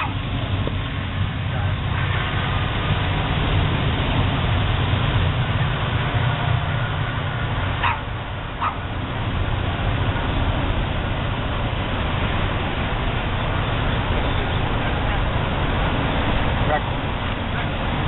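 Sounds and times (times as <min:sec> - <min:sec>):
dogs barking and yipping: 0:00.0 - 0:00.2, 0:07.8 - 0:08.9
low rumble: 0:00.0 - 0:18.0.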